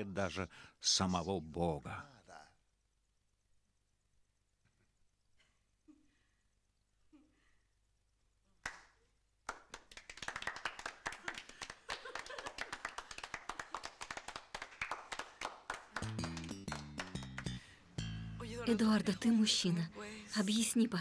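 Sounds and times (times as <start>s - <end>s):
people applauding: 8.6s - 8.9s, 9.5s - 17.6s
single hand clap: 8.6s - 17.6s
music: 15.8s - 21.0s.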